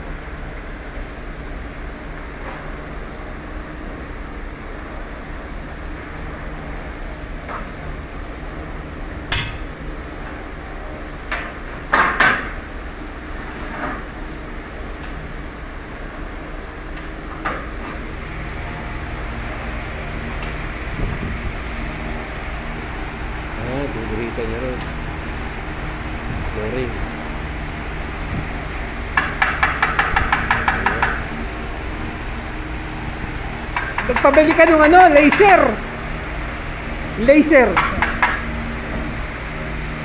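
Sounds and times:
steady machine hum: 0.0 - 40.0
metal clanks and knocks: 9.3 - 9.8, 29.2 - 31.3.

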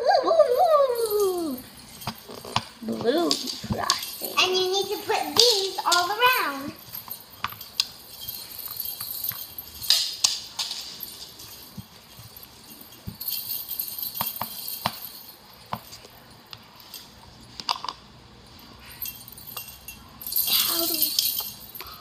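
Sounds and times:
small bells shaken on a garland: 0.2 - 17.6, 18.4 - 22.0.

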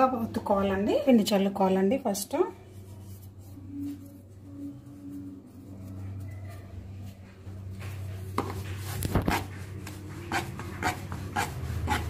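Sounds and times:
rolling pin rubbing on dough: 2.7 - 12.0.

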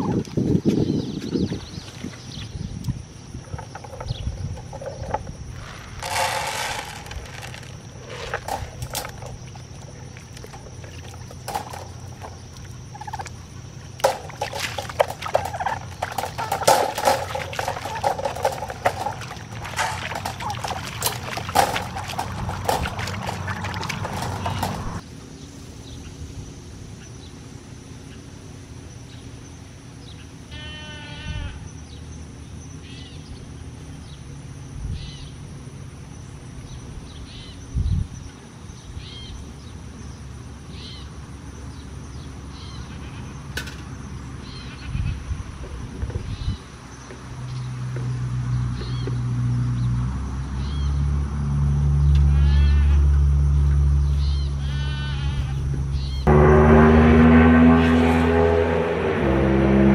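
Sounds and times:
turkeys gobbling: 14.0 - 25.0.

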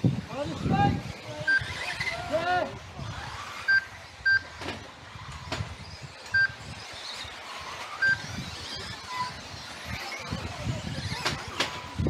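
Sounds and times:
whine of electric toy cars racing: 0.0 - 12.0
short electronic beeps: 1.5 - 1.9, 3.7 - 4.5, 6.3 - 6.7, 8.0 - 8.3.

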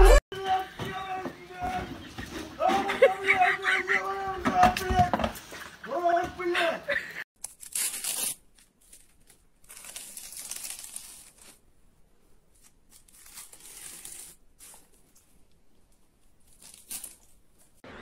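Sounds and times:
plastic film peeling and crinkling: 7.4 - 11.7, 12.5 - 15.4, 16.2 - 17.8.

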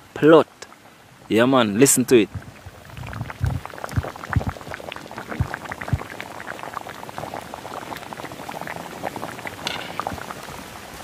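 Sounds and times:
stew bubbling at a hard boil: 0.0 - 11.0.

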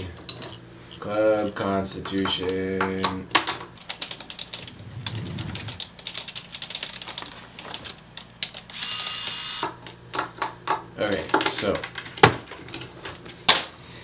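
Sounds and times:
steady low hum: 0.0 - 8.5
typing on computer keyboard: 2.2 - 8.7.

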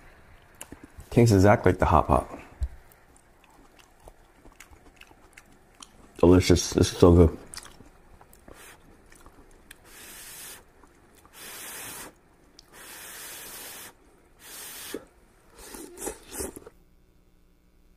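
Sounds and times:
slurping mouth sounds: 8.4 - 16.7
person blowing on hot noodles: 9.8 - 10.7, 11.3 - 16.7.

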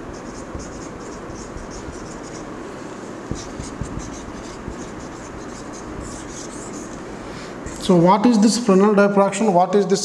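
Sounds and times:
marker squeaking on whiteboard: 0.0 - 7.0, 7.7 - 8.0.

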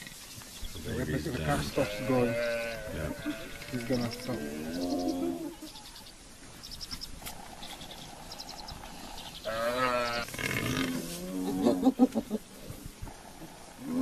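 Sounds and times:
buffalo calf bawling: 1.3 - 5.7.

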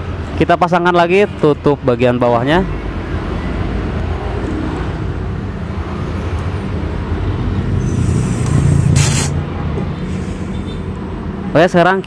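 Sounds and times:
short sharp sound: 7.8 - 9.4.

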